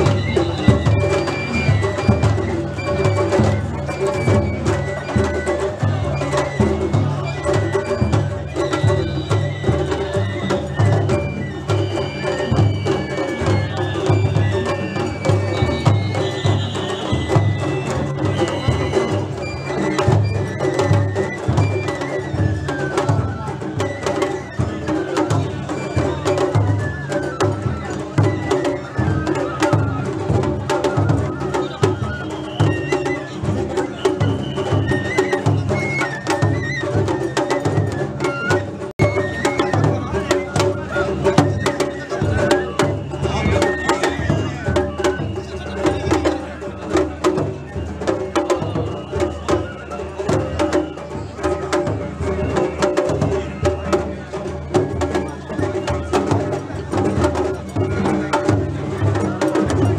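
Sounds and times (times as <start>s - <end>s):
sharp percussion clacks: 0.0s - 47.5s
high flute melody: 0.0s - 58.7s
taiko drum beat: 0.0s - 59.9s.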